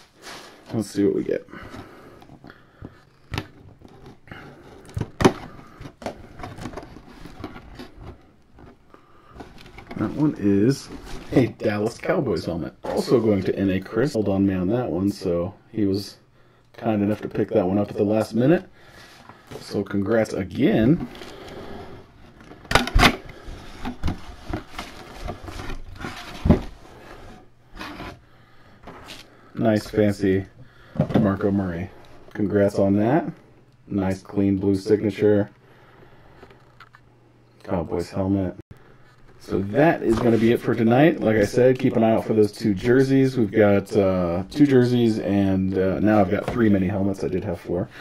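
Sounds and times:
cardboard rustling and knocks: 23.8s - 26.8s.

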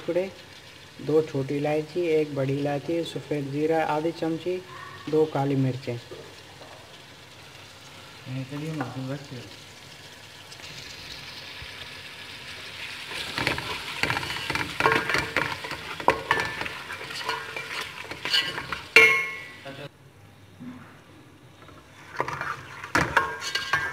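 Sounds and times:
meat sizzling in hot oil: 0.0s - 19.8s, 22.0s - 23.9s
spatula scraping pot: 13.1s - 19.5s, 21.6s - 23.9s.

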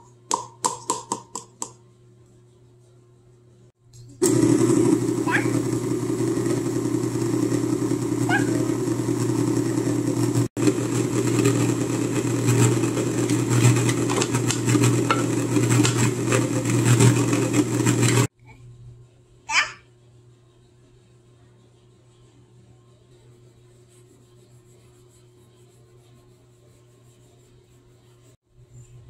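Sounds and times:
stand mixer motor humming: 4.2s - 18.3s.

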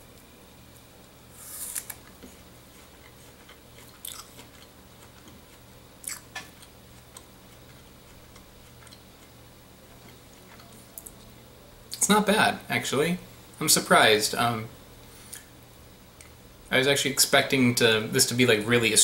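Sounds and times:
crunchy fruit being chewed: 1.4s - 11.2s.

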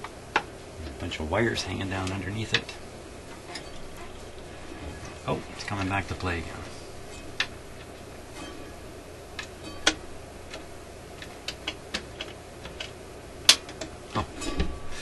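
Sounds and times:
record player mechanism clicking: 1.6s - 6.4s, 9.3s - 14.7s.

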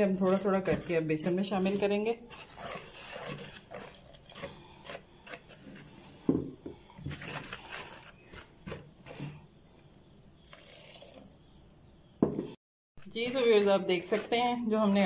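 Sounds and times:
whisk scraping in plastic bowl: 0.0s - 9.4s, 13.0s - 15.0s.

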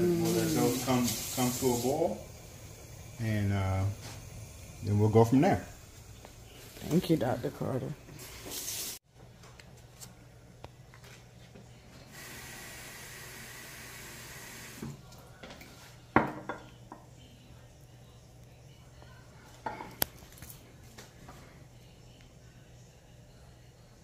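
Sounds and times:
steady hiss: 0.0s - 9.0s, 12.1s - 15.0s
glassware set down on stone: 16.2s - 16.6s.

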